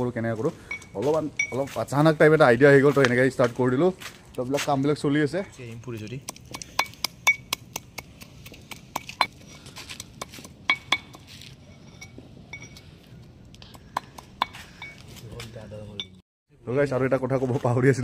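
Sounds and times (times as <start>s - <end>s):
pestle pounding in a mortar: 6.2s - 9.4s.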